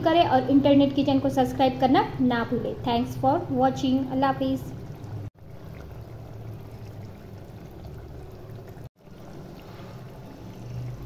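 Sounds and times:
gravy bubbling in a pot: 3.7 - 11.0.

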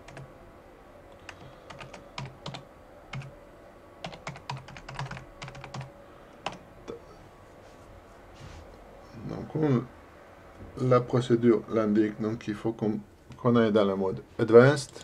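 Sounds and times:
typing on keyboard: 0.0 - 0.3, 1.1 - 3.3, 4.0 - 6.6.

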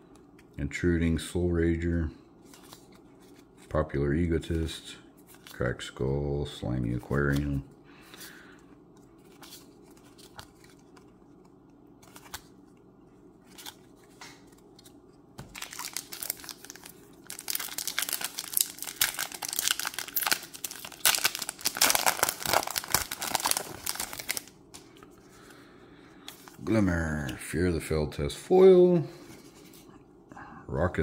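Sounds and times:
plastic wrapper crinkling and tearing: 13.4 - 24.6.

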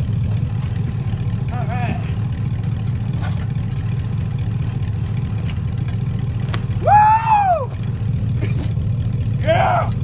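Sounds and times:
truck engine idling: 0.0 - 10.0
man whooping yell: 6.8 - 7.8, 9.4 - 10.0.

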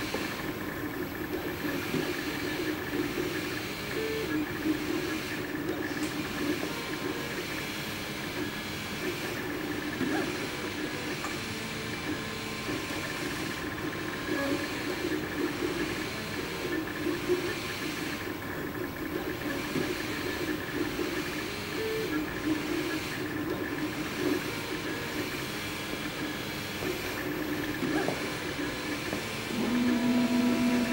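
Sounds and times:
stepper motors whining: 19.2 - 30.9.

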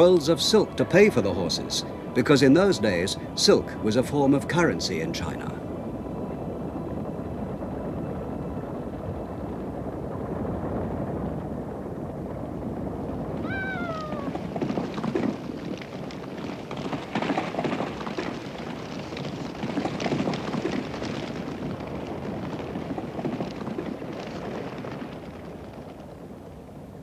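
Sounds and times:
horses galloping hoofbeats: 12.2 - 26.9
horse whinnying: 13.4 - 14.4.

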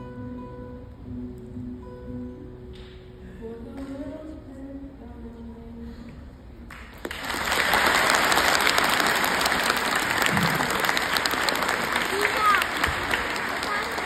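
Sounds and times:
audience applause: 6.7 - 14.0.

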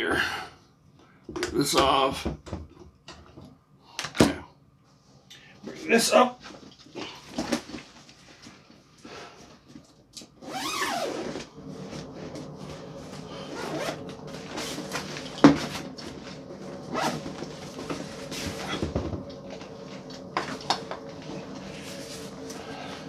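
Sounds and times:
zipper pulled open: 10.4 - 11.5, 16.9 - 17.3
nylon fabric rustling: 10.4 - 23.0.

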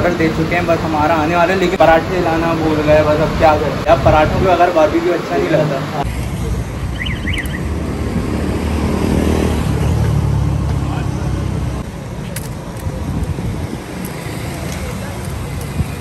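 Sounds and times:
road traffic rumble: 0.0 - 16.0
vehicle low rumble: 6.0 - 16.0.

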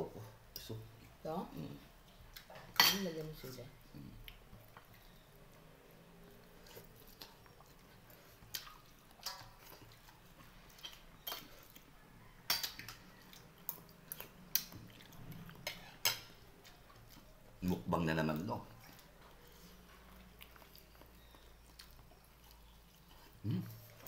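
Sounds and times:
soft chewing: 0.1 - 24.0.

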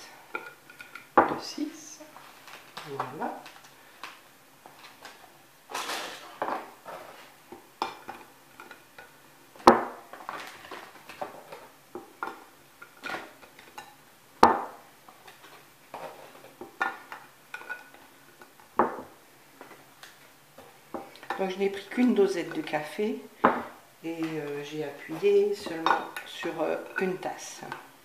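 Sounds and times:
sharp knocks on wooden worktop: 9.6 - 10.0, 23.4 - 23.7.

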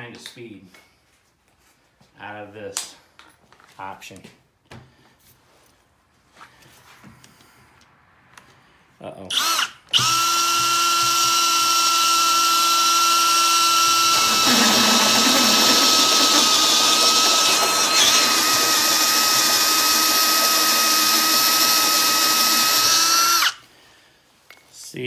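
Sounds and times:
drill hole saw cutting wood: 9.3 - 23.6.

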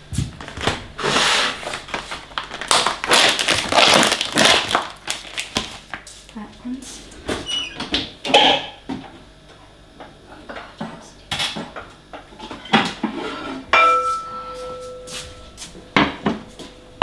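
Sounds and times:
metal pots and pans clattering: 8.3 - 8.8, 12.4 - 14.8
metal cookware ringing: 13.7 - 15.1.

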